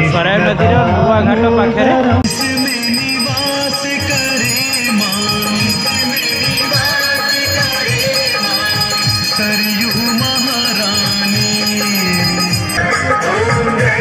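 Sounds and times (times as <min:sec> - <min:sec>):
bells jingling: 0:02.3 - 0:12.8.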